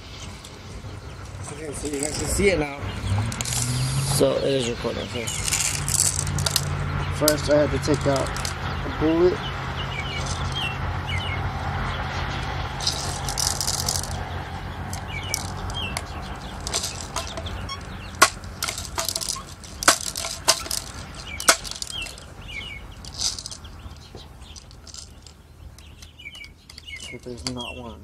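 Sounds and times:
small birds chirping: 0.0s - 28.0s
rustling: 5.2s - 6.7s, 8.0s - 8.6s, 10.1s - 10.7s, 12.8s - 27.6s
air gun clicking and rattling: 14.9s - 22.2s.

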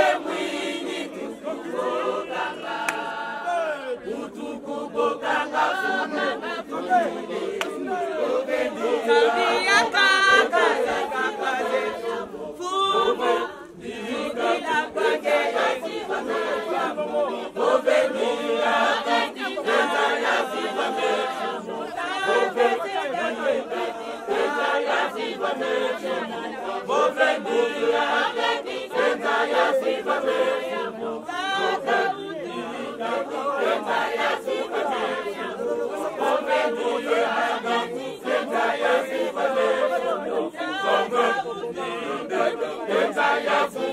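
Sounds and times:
church members singing in chorus: 0.0s - 43.9s.

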